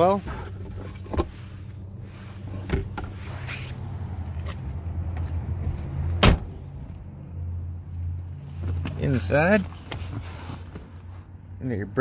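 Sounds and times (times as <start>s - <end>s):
truck door thump: 6.2s - 6.6s.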